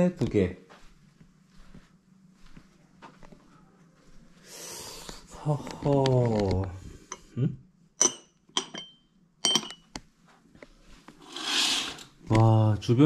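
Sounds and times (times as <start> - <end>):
clinks of glass or metal: 8.0 - 9.9.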